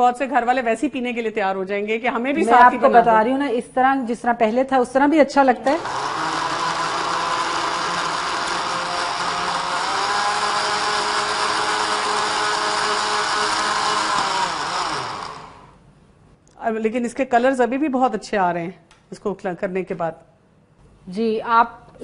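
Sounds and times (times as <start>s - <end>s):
blender running: 5.7s - 15.8s.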